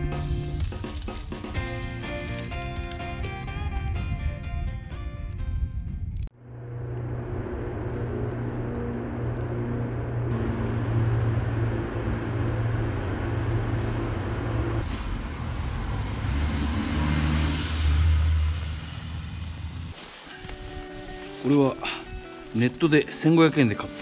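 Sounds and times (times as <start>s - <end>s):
truck engine approaching echoing: 6.3s - 20.0s.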